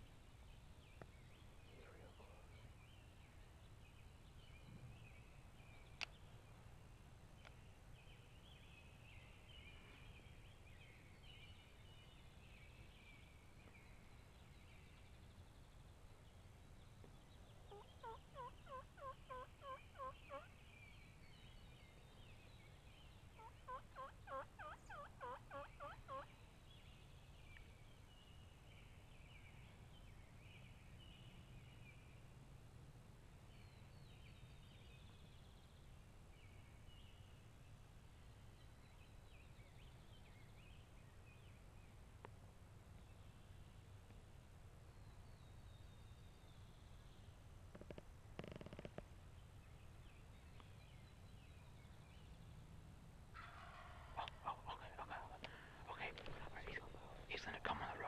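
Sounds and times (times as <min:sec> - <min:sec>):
songbirds chattering: 0:01.0 - 0:06.7, 0:15.8 - 0:27.7, 0:53.4 - 0:58.0
turkey yelps: 0:17.7 - 0:20.5, 0:23.4 - 0:26.3, 0:53.4 - 0:54.8.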